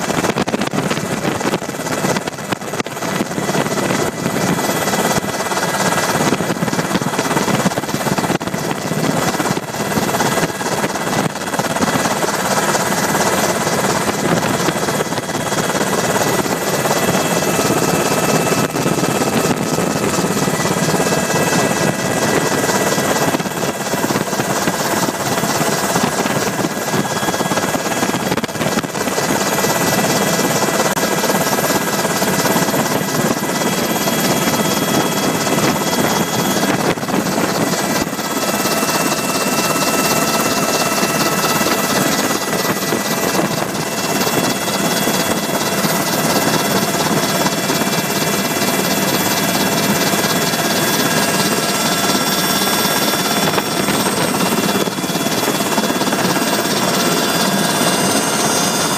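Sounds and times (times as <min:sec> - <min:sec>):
helicopter engines and rotors din: 0:00.0 - 0:58.9
high whining tones: 0:06.8 - 0:30.3.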